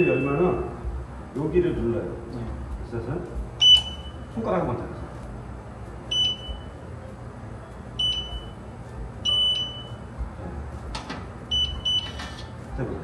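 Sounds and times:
short high electronic beeps: 0:03.6 - 0:04.3, 0:06.1 - 0:06.7, 0:09.2 - 0:10.0.

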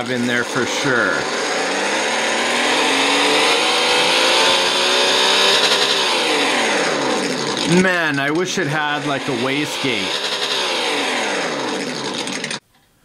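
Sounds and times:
simulated engine revving: 0:00.0 - 0:12.6.

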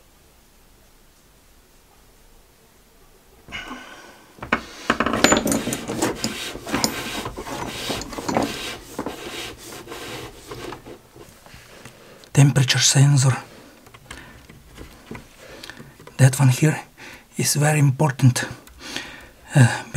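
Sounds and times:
rubbing and scraping: 0:04.4 - 0:11.9, 0:12.7 - 0:16.6.

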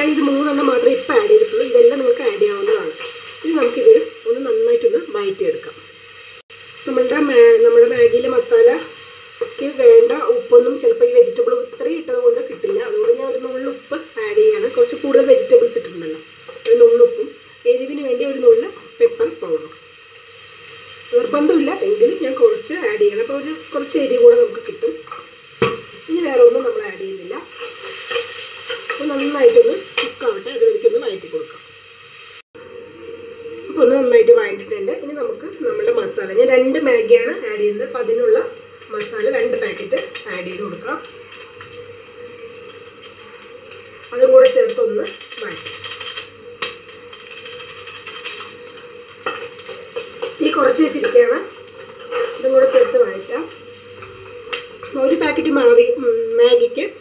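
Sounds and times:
vegetables sizzling in oil: 0:00.0 - 0:57.0
spoon scraping and stirring: 0:27.4 - 0:29.4, 0:41.0 - 0:54.9.

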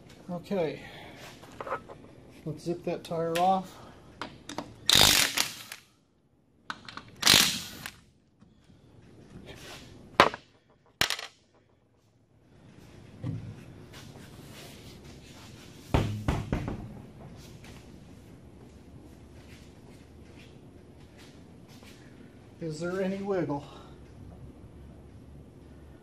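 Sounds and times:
impact wrench bursts: 0:04.8 - 0:05.8, 0:07.2 - 0:08.0.

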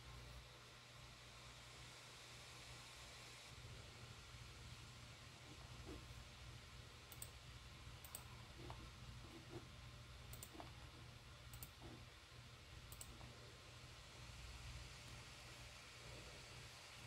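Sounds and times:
low steady hum: 0:00.0 - 0:17.0
faint sharp clicks: 0:12.9 - 0:13.2.

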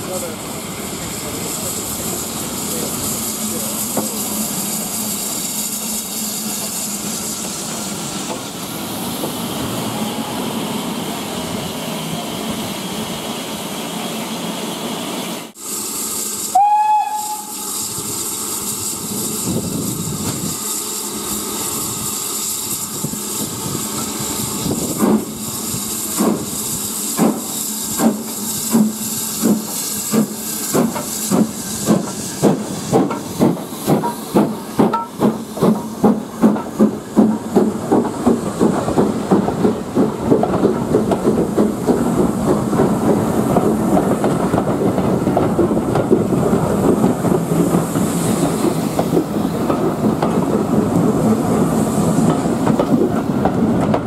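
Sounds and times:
hiss of steam: 0:00.0 - 0:53.8
steam locomotive exhaust beats: 0:15.5 - 0:54.0
steam locomotive whistle: 0:16.4 - 0:19.0.

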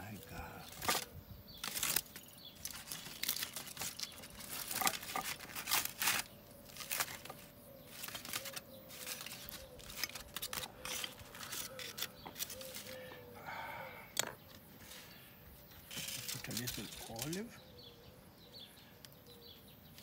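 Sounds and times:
aluminium foil crinkling: 0:00.1 - 0:13.1, 0:15.9 - 0:17.6.

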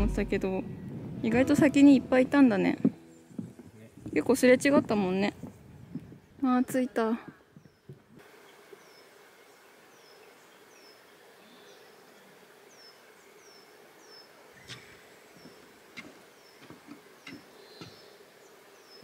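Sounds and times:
steady hiss: 0:07.6 - 0:19.0.

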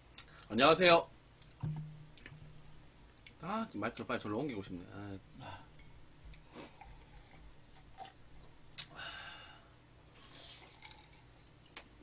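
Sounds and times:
chewing crunchy food: 0:10.2 - 0:11.9.

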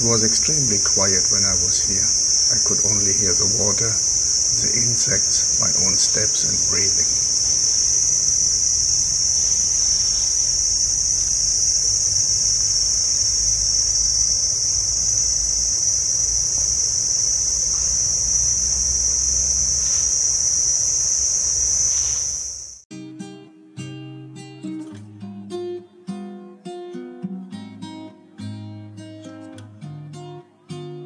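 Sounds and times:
high-pitched insect drone: 0:00.0 - 0:22.9.

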